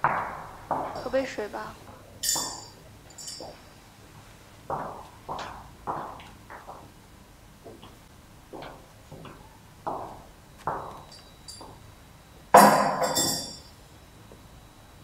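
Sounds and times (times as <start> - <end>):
footsteps on hard floor: 3.4 - 6.9
ceramic mug clinking on table: 12.6 - 13.6.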